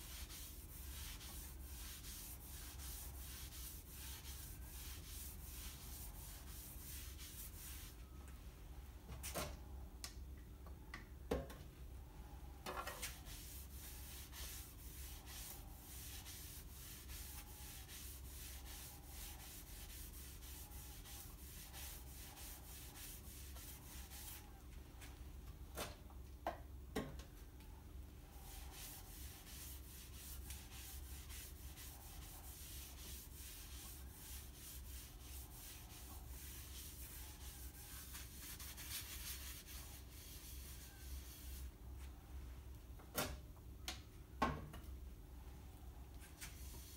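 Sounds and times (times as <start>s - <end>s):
cloth wiping wood: 0.0s - 8.0s, 13.1s - 24.5s, 28.3s - 41.7s.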